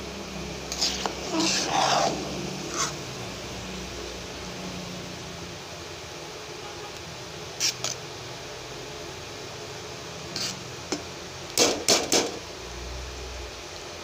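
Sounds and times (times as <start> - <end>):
metal spoon scraping a pot: 0.7 - 3.0, 10.4 - 10.6.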